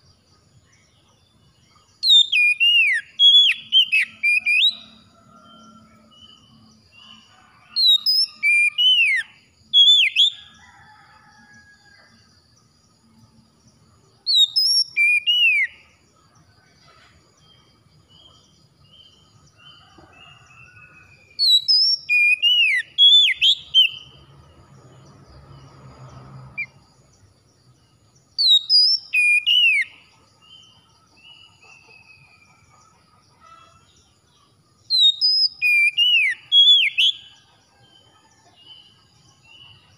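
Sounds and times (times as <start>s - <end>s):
bird whistled song phrases: 2.0s - 5.0s, 14.3s - 15.8s, 20.8s - 24.1s, 28.4s - 30.0s, 34.9s - 37.2s.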